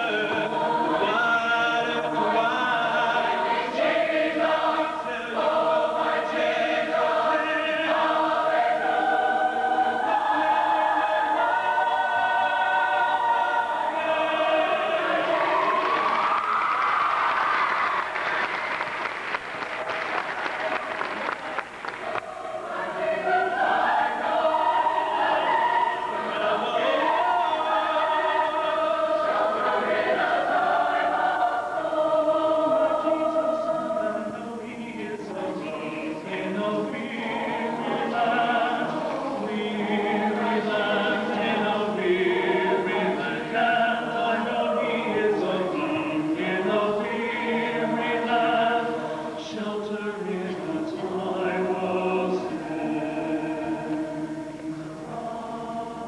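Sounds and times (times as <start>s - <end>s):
choir singing in harmony: 0.0s - 18.8s, 21.8s - 56.0s
applause: 15.8s - 22.3s.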